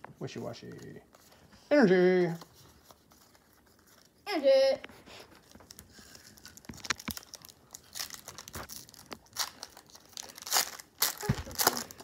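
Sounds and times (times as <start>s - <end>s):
trading cards being handled: 5.2s - 12.0s
foil wrapper crinkling: 5.4s - 12.0s.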